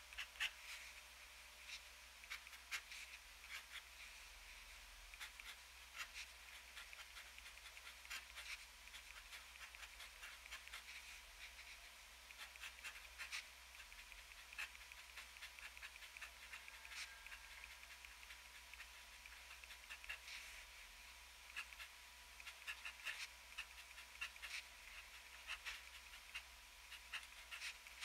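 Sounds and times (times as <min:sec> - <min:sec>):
fountain pen scratching paper: 0:00.1 - 0:00.8, 0:01.7 - 0:04.1, 0:05.1 - 0:20.6, 0:21.5 - 0:28.0
pen nib ticks: 0:05.1 - 0:11.0, 0:12.3 - 0:20.4, 0:21.5 - 0:28.0.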